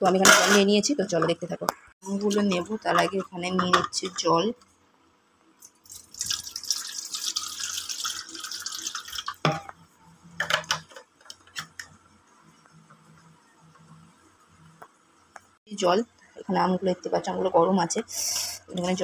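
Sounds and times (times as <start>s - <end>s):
water pouring into metal bowl: 5.7s - 9.4s.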